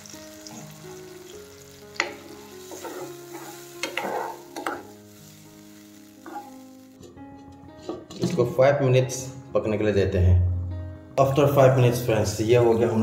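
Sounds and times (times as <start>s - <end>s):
low sizzle: 0.0s - 7.9s
spatula scraping masala in wok: 2.6s - 6.9s.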